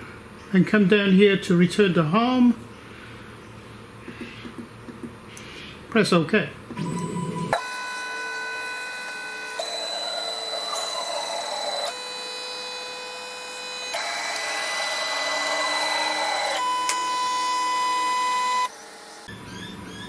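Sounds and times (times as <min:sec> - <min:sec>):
stepper motors whining: 0:06.7 - 0:20.0.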